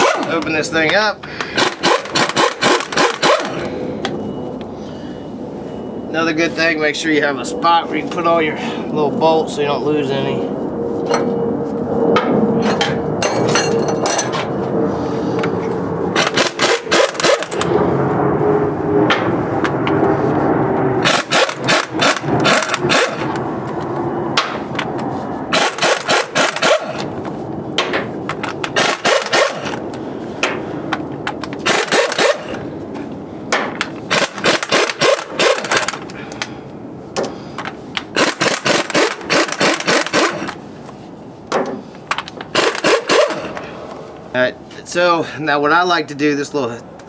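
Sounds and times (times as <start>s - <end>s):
steady machinery hum: 0.0s - 47.0s
impact wrench hammering: 1.5s - 3.6s, 16.2s - 17.7s, 25.5s - 27.1s, 27.8s - 29.8s, 31.6s - 32.6s, 38.1s - 40.5s, 42.5s - 43.5s.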